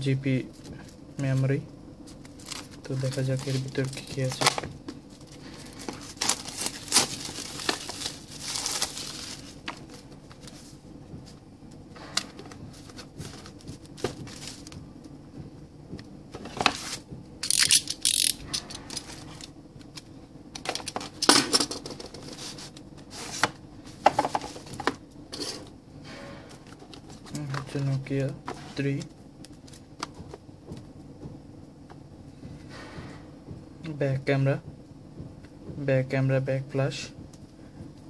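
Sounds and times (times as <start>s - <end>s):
plastic wrapping crinkling: 2.0s - 10.6s.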